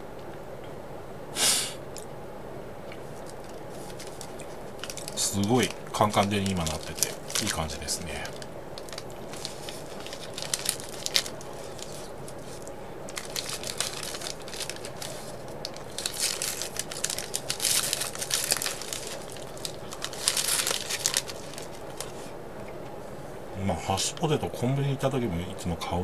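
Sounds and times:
paper sleeve crinkling: 0:03.1 - 0:22.4.

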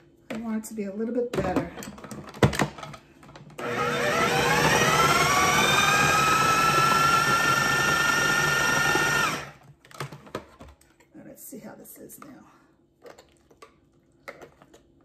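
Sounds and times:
food processor motor whining: 0:03.6 - 0:09.6.

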